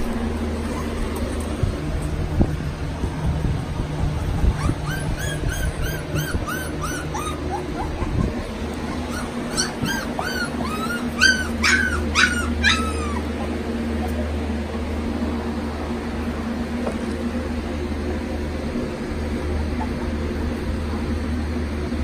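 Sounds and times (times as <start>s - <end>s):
puppies whimpering: 0.0s - 1.6s, 4.2s - 13.6s.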